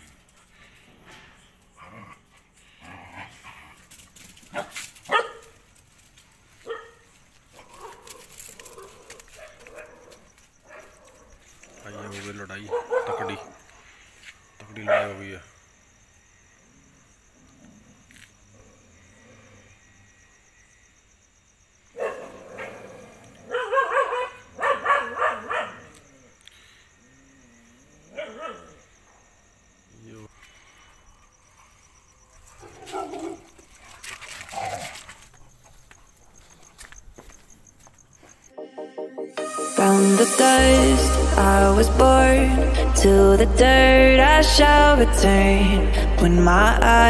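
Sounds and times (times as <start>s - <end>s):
dogs barking and yelping: 3.2s - 5.6s, 6.6s - 11.8s, 12.6s - 13.6s, 22.0s - 26.4s, 27.9s - 29.2s, 32.4s - 34.9s.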